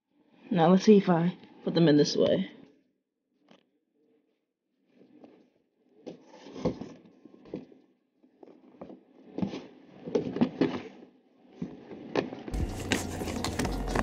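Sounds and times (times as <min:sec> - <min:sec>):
sneaker scraping plastic box: 0:12.5 - 0:14.0.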